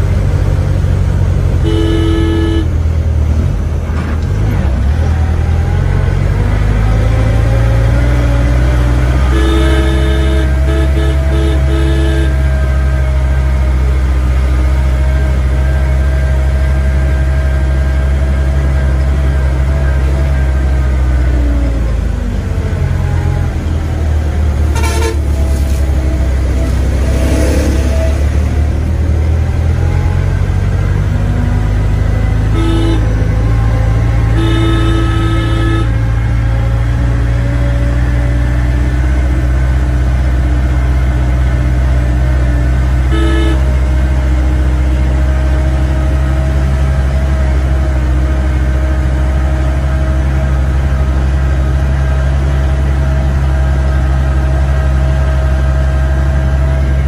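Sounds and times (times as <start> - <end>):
truck passing close by: 0.0 - 57.0
vehicle engine running: 0.0 - 57.0
car horn tooting: 1.6 - 2.8, 9.2 - 12.6, 24.7 - 25.5, 32.4 - 36.2, 43.0 - 44.0.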